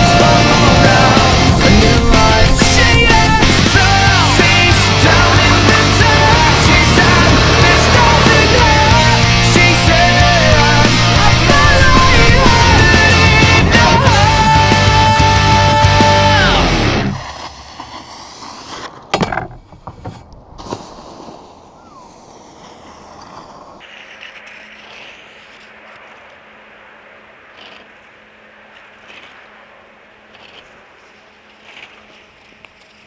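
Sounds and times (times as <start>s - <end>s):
faint outdoor hiss: 17.1s - 33.0s
small ticks: 27.5s - 28.1s, 28.7s - 29.5s, 30.3s - 33.0s.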